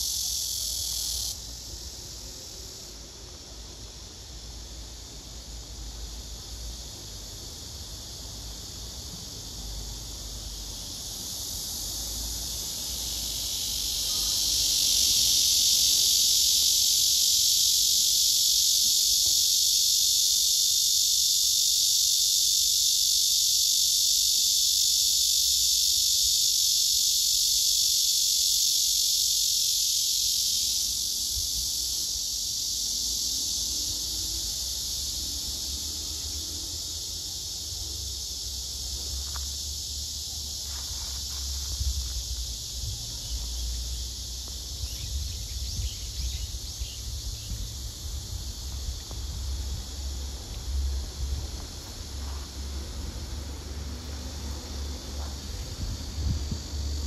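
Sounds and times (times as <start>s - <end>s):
cicadas buzzing: 0.0s - 57.0s.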